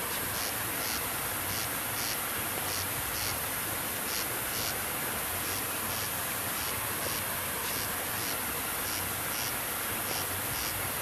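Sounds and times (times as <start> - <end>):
stream flowing over rocks: 0.0 - 11.0
insect chirping: 4.1 - 4.8, 5.4 - 9.5, 10.1 - 10.8.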